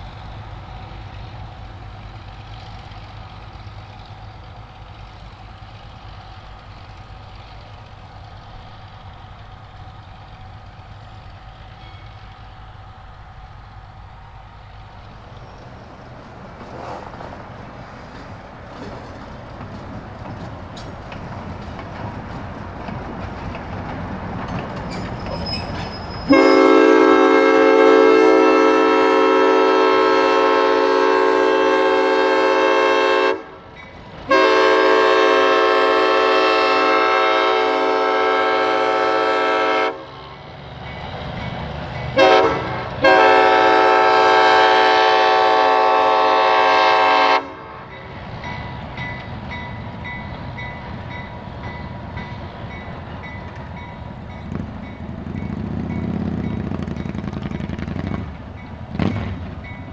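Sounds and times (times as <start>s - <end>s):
locomotive engine rumble: 0.0s - 59.9s
locomotive air horn blasts: 26.3s - 33.6s, 34.3s - 40.2s, 42.2s - 47.9s.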